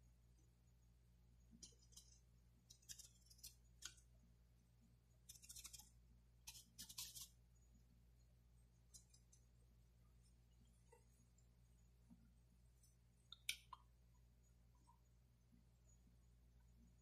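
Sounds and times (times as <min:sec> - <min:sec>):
low steady hum: 0:00.0 - 0:17.0
paintbrush strokes on palette: 0:05.2 - 0:07.4.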